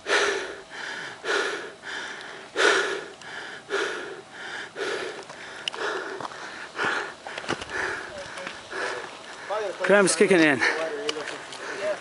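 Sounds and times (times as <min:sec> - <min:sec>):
person breathing hard: 0:00.0 - 0:09.7, 0:10.6 - 0:12.0.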